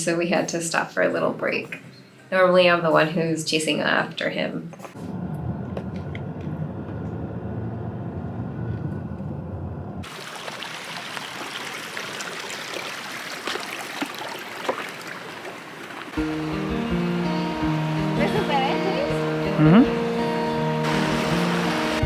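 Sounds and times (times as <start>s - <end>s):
car driving rumble from inside: 5.0s - 10.0s.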